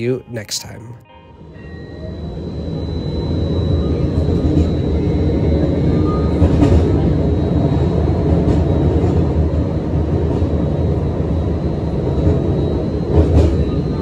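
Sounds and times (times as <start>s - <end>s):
faint high steady tone: 0.0s - 6.4s
streetcar rumbling on track: 1.4s - 14.0s.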